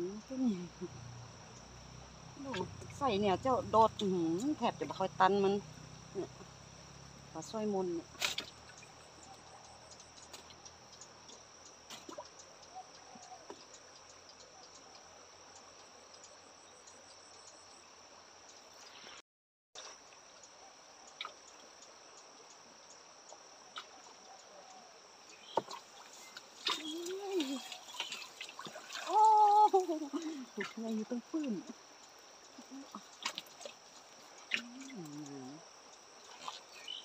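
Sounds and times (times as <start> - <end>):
water dripping: 25.5 - 36.7.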